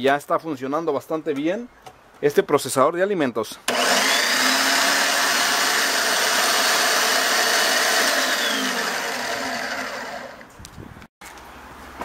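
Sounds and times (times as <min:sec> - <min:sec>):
food processor motor running: 0:03.7 - 0:10.5.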